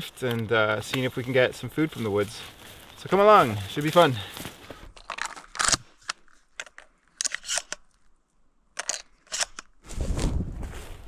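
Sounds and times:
footsteps crunching dry leaves: 0.8 - 4.9.

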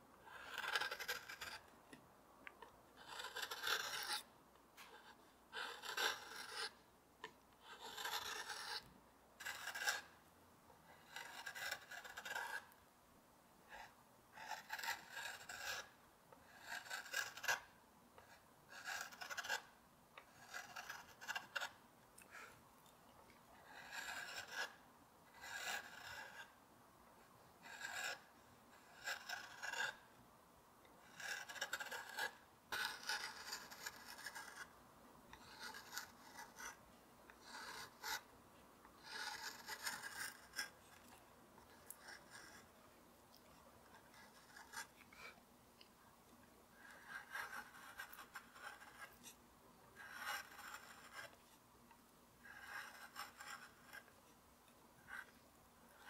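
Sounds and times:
carving gouge scraping wood: 0.2 - 1.7, 3.0 - 6.8, 7.6 - 10.2, 10.8 - 12.8, 13.7 - 21.7, 23.6 - 26.6, 27.6 - 30.1, 31.0 - 34.7, 35.3 - 38.3, 39.0 - 42.7, 43.8 - 45.4, 46.8 - 49.3, 50.0 - 51.4, 52.4 - 54.2, 55.0 - 56.0.

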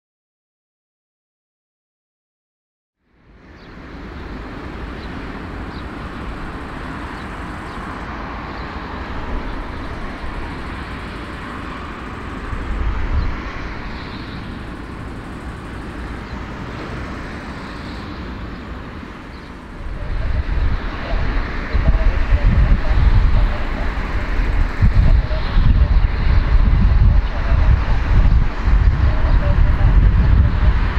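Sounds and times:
jet engines running: 3.1 - 30.9
deep low rumble: 19.6 - 30.9.

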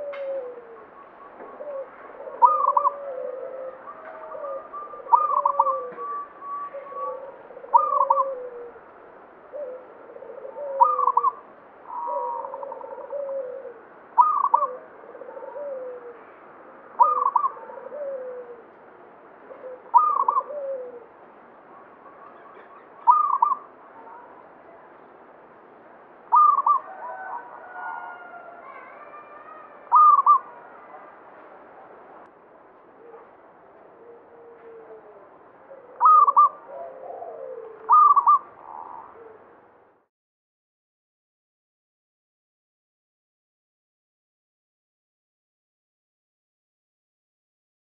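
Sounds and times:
dove cooing: 0.0 - 18.8, 19.4 - 24.8, 26.3 - 31.2, 32.9 - 39.8.

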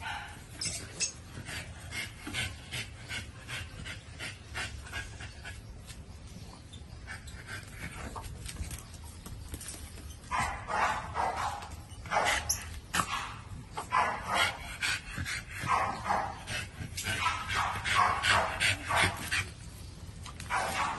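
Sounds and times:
dog barking and yipping: 10.3 - 14.6, 15.6 - 16.4, 17.1 - 19.2, 20.5 - 20.9.

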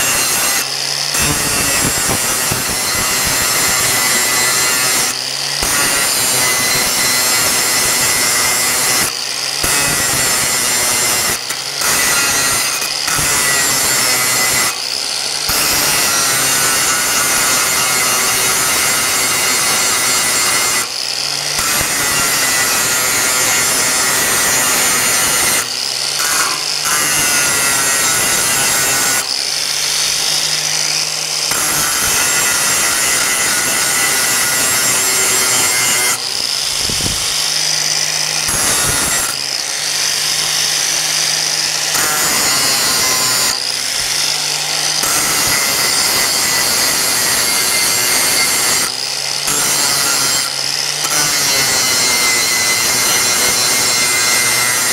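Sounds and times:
angle grinder cutting steel: 0.0 - 54.9.

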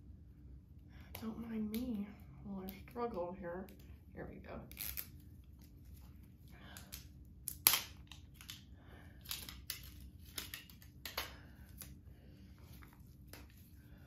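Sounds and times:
sharp plastic snap: 6.9 - 8.6.

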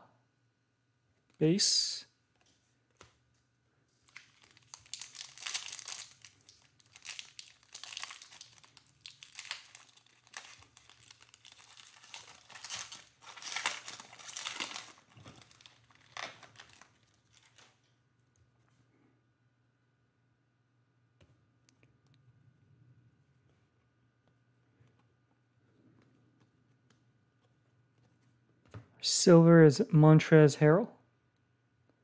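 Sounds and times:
foil wrapper tearing and crinkling: 4.0 - 17.8.

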